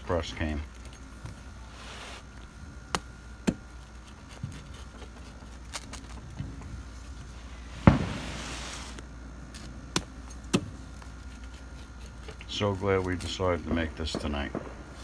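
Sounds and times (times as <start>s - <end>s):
knife cutting crackling pizza crust: 2.9s - 6.3s, 9.5s - 13.7s.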